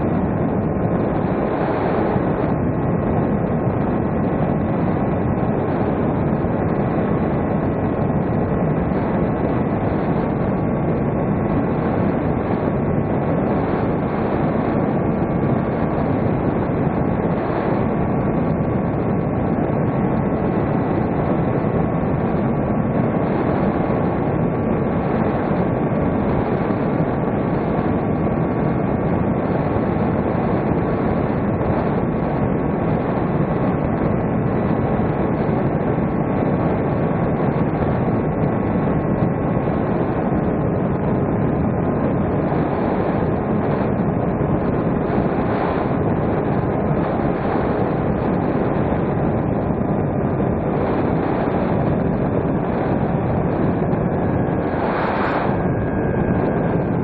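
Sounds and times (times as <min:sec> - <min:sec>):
air rushing across microphone: 0:40.1 - 0:57.0.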